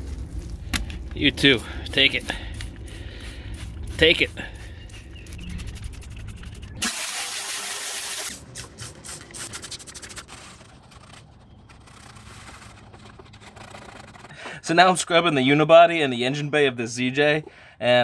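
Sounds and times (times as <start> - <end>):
hand rubbing sheet metal: 1.4 - 6.8
spray bottle hissing: 2.3 - 9.9.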